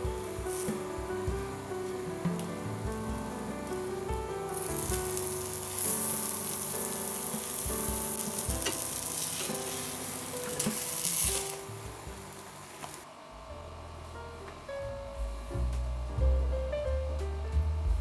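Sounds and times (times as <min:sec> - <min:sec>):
flatbread sizzling in a pan: 0:00.0 - 0:13.1
soft background music: 0:00.0 - 0:18.0.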